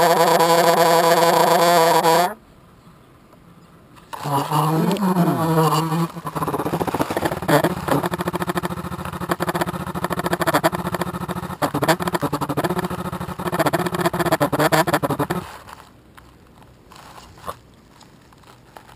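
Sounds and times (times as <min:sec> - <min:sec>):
electric motors buzzing: 0:04.2 - 0:15.4.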